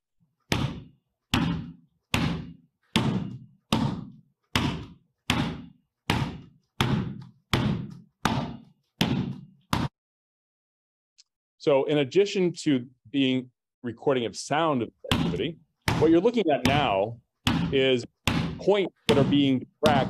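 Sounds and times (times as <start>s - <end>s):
basketball bouncing on wooden floor: 0.4s - 9.9s, 15.1s - 20.0s.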